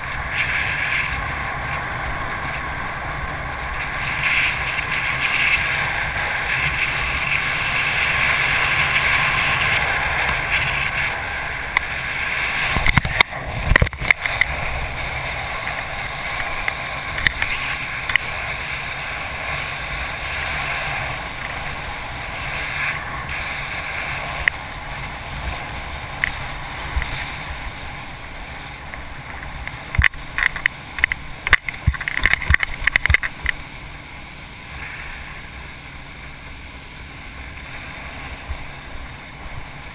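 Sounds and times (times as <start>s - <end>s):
wind and water rushing: 0.0s - 39.9s
sharp knocks and crackles: 3.5s - 18.6s, 28.6s - 33.7s.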